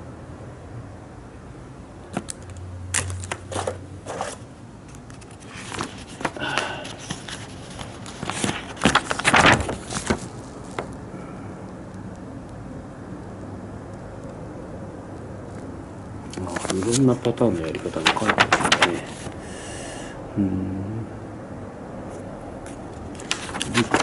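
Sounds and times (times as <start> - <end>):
paper rustling and crinkling: 3.0 - 11.0, 16.3 - 19.4, 22.7 - 24.0.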